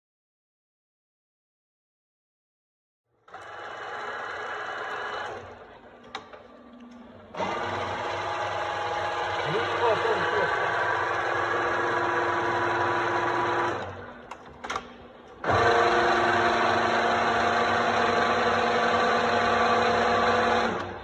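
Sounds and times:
milling machine geared whine: 0:03.4 - 0:14.8
machine clicks: 0:10.4 - 0:15.7.

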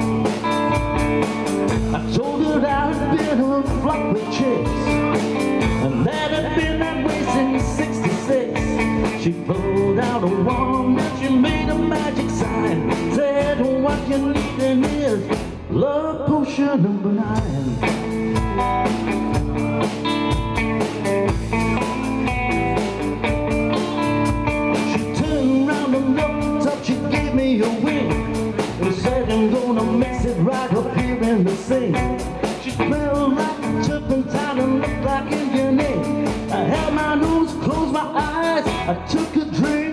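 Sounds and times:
drum kit: 0:00.0 - 0:15.8, 0:17.2 - 0:39.9
electric guitar: 0:00.0 - 0:39.9
man singing: 0:01.6 - 0:18.1, 0:24.7 - 0:39.9.

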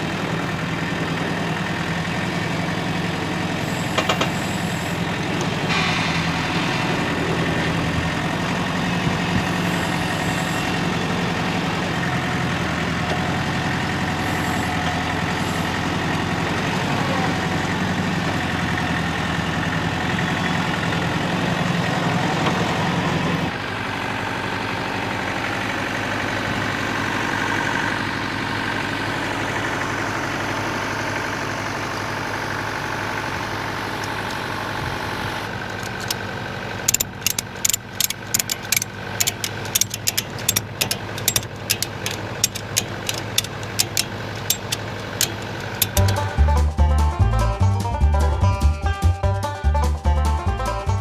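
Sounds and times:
tractor diesel engine running: 0:00.0 - 0:51.0
ratchet strap clicking: 0:36.9 - 0:46.2.

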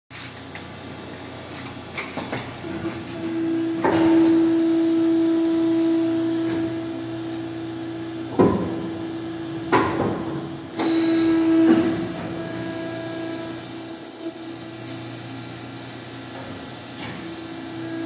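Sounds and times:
hydraulic machine hum: 0:00.7 - 0:18.0
machine clunks: 0:03.7 - 0:04.8, 0:08.3 - 0:13.0.

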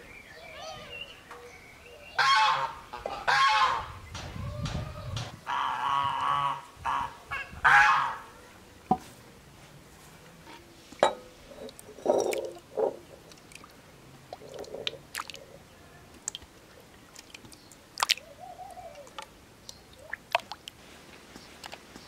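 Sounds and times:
thick liquid squelching and sloshing: 0:11.5 - 0:15.6, 0:16.2 - 0:18.2, 0:20.0 - 0:20.8.

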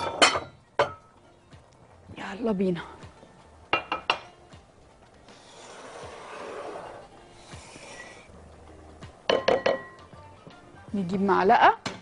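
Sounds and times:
utensil scraping in glass bowl: 0:05.3 - 0:08.3.

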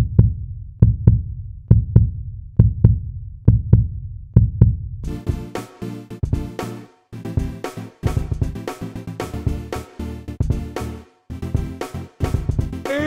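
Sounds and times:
heartbeat thumps: 0:00.0 - 0:05.5, 0:06.2 - 0:06.6, 0:07.4 - 0:08.6, 0:09.4 - 0:09.7, 0:10.4 - 0:10.8, 0:11.6 - 0:12.8
music with a beat: 0:05.0 - 0:13.0.

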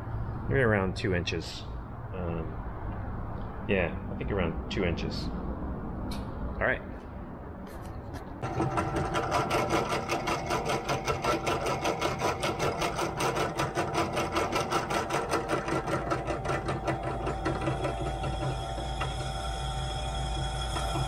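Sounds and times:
drill press motor hum: 0:08.4 - 0:21.0.

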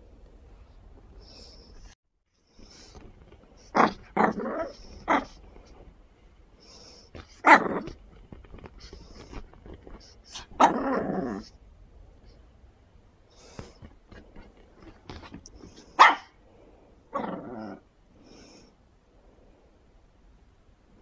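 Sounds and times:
puppy barking: 0:16.0 - 0:16.4.

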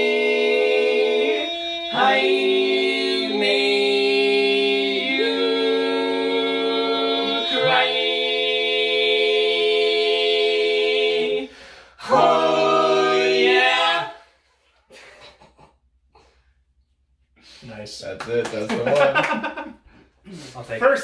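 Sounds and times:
men singing in close harmony: 0:00.0 - 0:11.4, 0:12.0 - 0:14.1.

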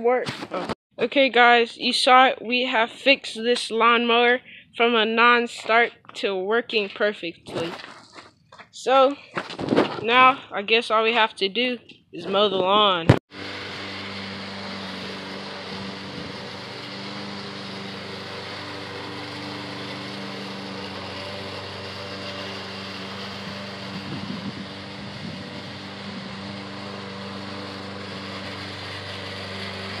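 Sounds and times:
push mower engine running: 0:13.3 - 0:30.0.

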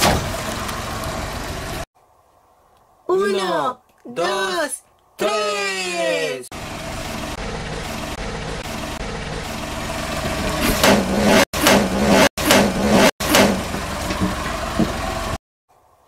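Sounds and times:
car engine running: 0:00.0 - 0:01.8, 0:06.5 - 0:15.4.

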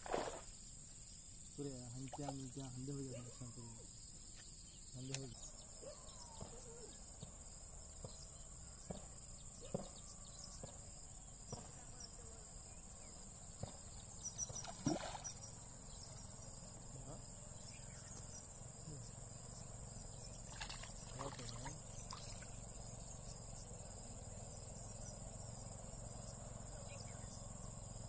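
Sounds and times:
insect chorus: 0:00.0 - 0:28.0
faint clicks: 0:04.3 - 0:05.4.

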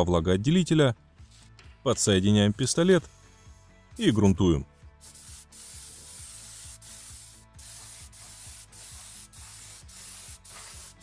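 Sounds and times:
spray gun hissing: 0:05.0 - 0:11.0.

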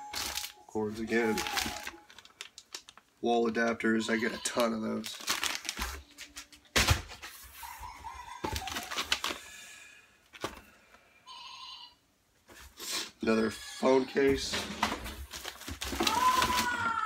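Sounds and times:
plastic bags crinkling: 0:00.0 - 0:07.2, 0:08.4 - 0:09.6, 0:14.4 - 0:17.0.

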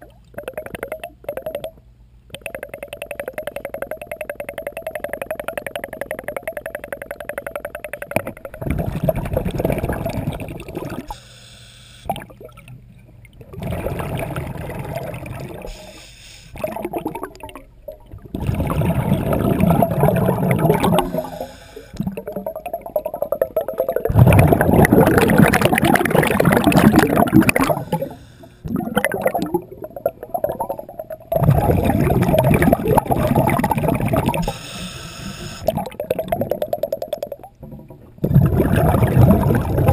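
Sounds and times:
faint steady hum: 0:00.0 - 0:39.9
underwater exhaled bubbles gurgling: 0:05.6 - 0:11.1, 0:13.3 - 0:15.9, 0:16.6 - 0:34.6, 0:35.3 - 0:39.9.

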